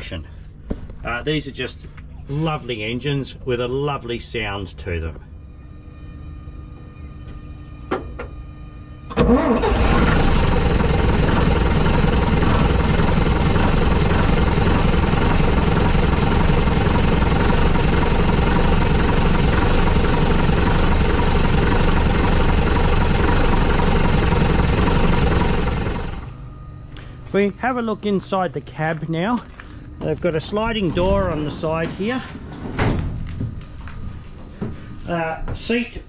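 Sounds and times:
diesel engine starting and running: 5.8s - 32.6s.

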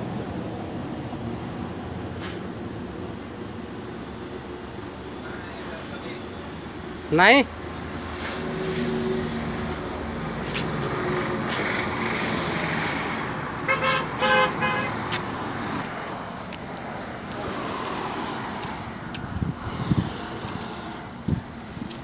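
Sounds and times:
vehicle engine passing: 8.0s - 21.8s
car horn toots: 13.7s - 15.0s.

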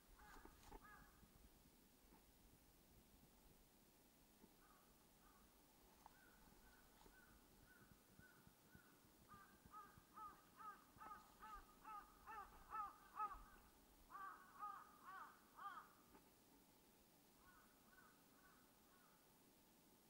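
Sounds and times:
crow cawing: 0.2s - 1.2s, 4.6s - 5.5s, 6.1s - 16.0s, 17.4s - 19.2s.

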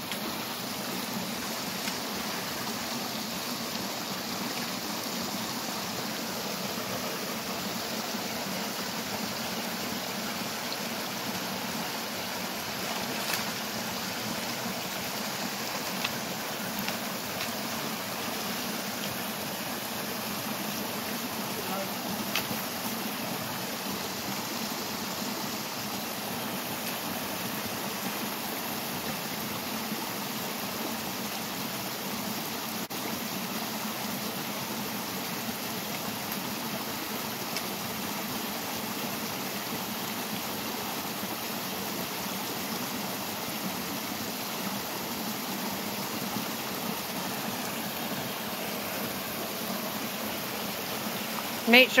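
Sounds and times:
small waterfall rushing: 0.0s - 52.0s.

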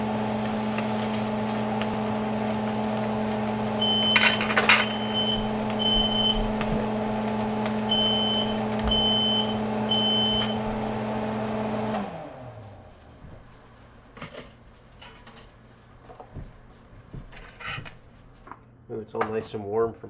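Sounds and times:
range hood fan hum: 0.0s - 20.0s
smoke alarm beeps: 3.8s - 6.7s, 7.8s - 10.9s.

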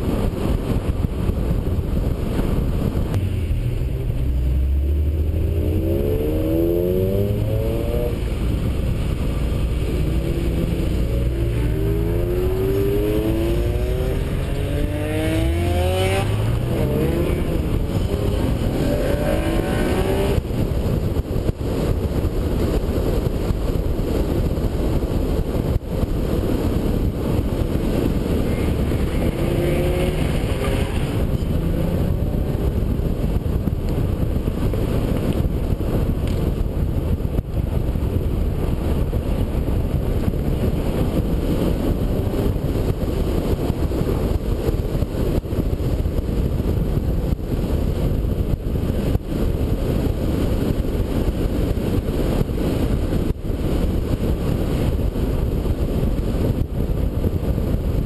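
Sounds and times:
sports car engine running: 0.0s - 25.1s
road noise: 0.0s - 58.0s
wind rush: 0.0s - 58.0s.

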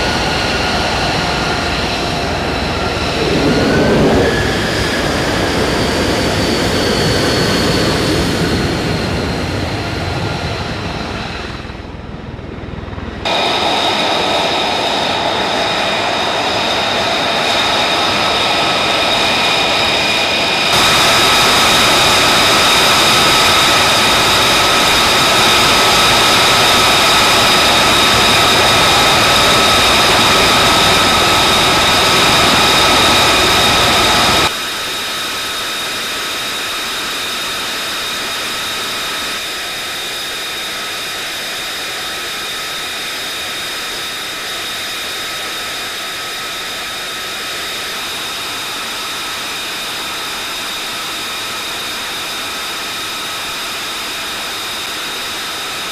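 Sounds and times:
jet engine idling: 0.0s - 55.9s.

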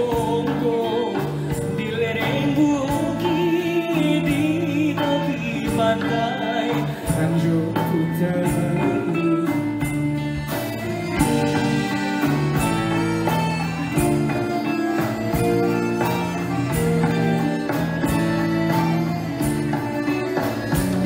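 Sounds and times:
man singing into a microphone: 0.0s - 10.0s
live band playing: 0.0s - 21.0s
percussion beat: 0.0s - 21.0s.

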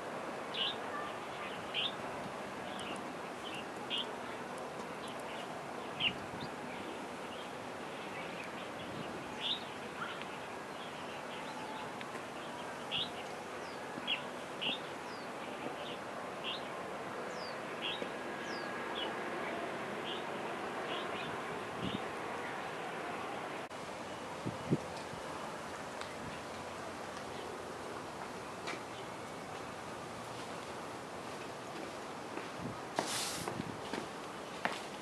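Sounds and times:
steady background hiss: 0.0s - 35.0s
birds chirping: 2.6s - 23.3s.

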